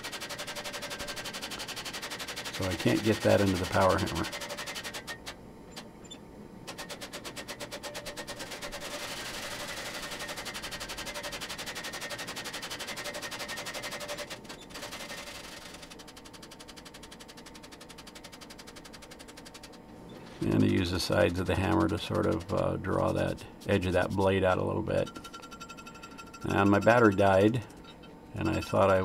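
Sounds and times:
power hammer pounding steel: 0:20.5 - 0:24.6, 0:26.0 - 0:27.6.

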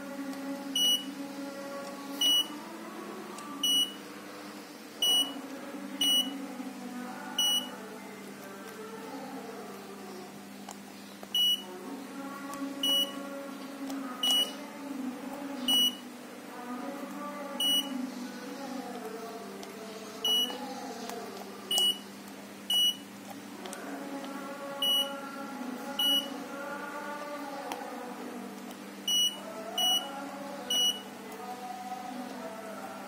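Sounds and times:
short high buzzer beeps: 0:05.0 - 0:05.4.

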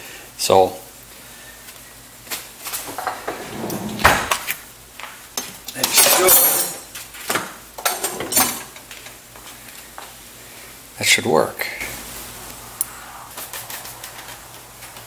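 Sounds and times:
metal hardware clinking: 0:05.4 - 0:06.9.

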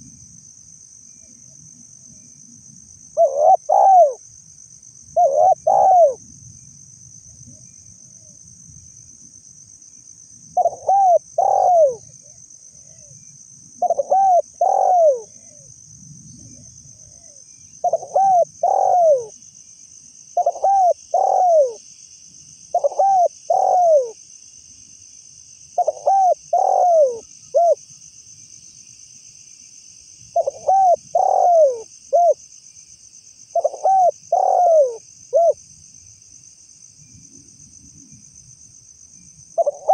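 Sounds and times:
high insect drone: 0:00.0 - 0:39.9
dove cooing: 0:03.2 - 0:04.2, 0:05.2 - 0:06.2, 0:10.6 - 0:13.1, 0:13.8 - 0:15.6, 0:17.2 - 0:19.4, 0:20.4 - 0:21.8, 0:22.7 - 0:24.2, 0:25.8 - 0:27.8, 0:30.4 - 0:32.4, 0:33.6 - 0:35.6, 0:39.6 - 0:39.9.

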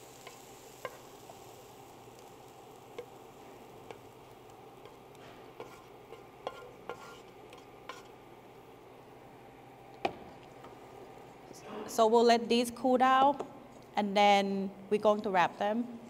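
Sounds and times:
faint steady hiss: 0:00.0 - 0:16.0
wooden spatula scraping skillet: 0:04.8 - 0:08.2.

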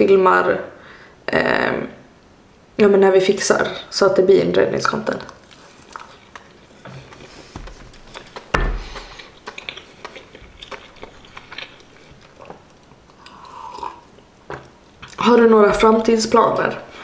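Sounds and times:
person chewing food: 0:05.2 - 0:15.3.

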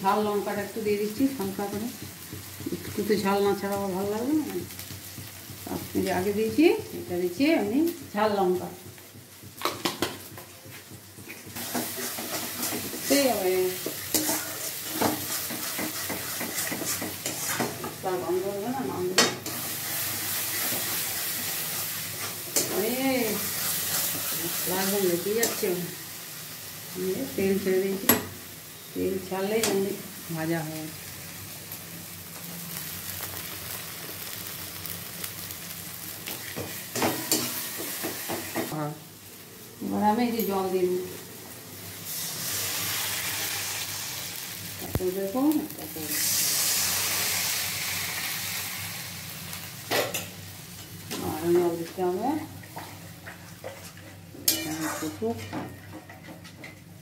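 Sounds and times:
spice paste sizzling in oil: 0:00.0 - 0:56.3
metal spatula scraping pan: 0:13.8 - 0:18.0, 0:53.6 - 0:56.3.

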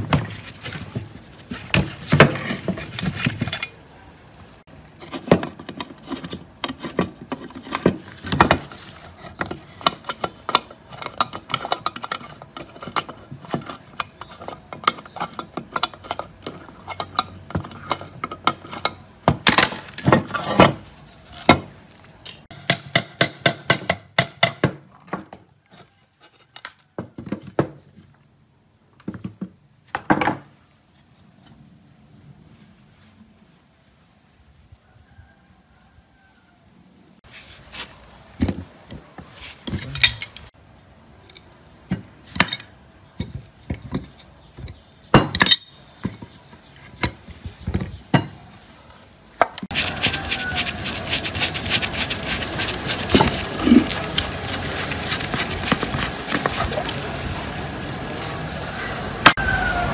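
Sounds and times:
hand tools clinking on metal: 0:22.2 - 0:22.7, 0:39.7 - 0:40.5.

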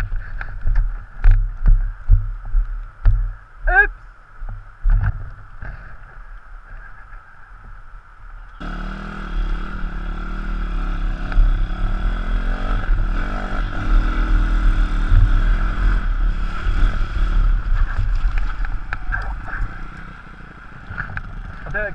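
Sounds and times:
low rumble: 0:08.6 - 0:21.7
motorcycle engine revving: 0:08.6 - 0:21.9.

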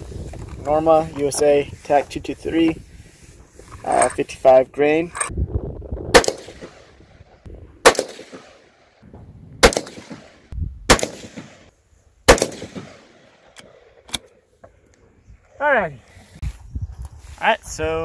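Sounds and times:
rifle shots: 0:06.1 - 0:07.0, 0:07.8 - 0:09.0, 0:09.6 - 0:11.7, 0:12.3 - 0:13.6.

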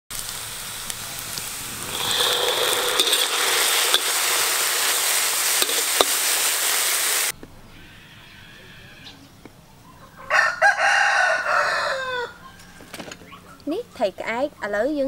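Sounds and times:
oil sizzling in a wok: 0:00.1 - 0:07.4
metal spatula scraping pan: 0:01.8 - 0:06.3.

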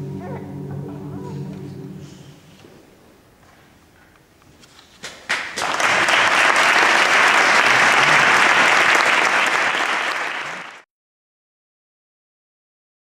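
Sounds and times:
audience applauding: 0:05.3 - 0:10.9.

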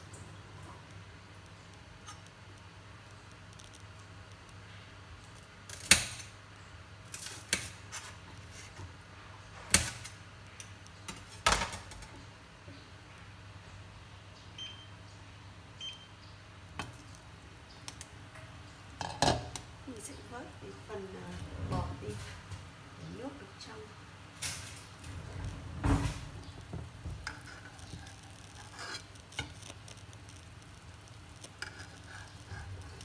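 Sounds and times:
soup simmering in pot: 0:15.8 - 0:20.7, 0:23.9 - 0:33.0.

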